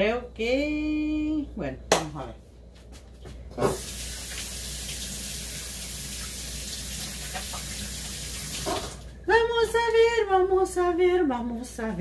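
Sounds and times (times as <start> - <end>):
faucet running into sink: 3.6 - 9.0.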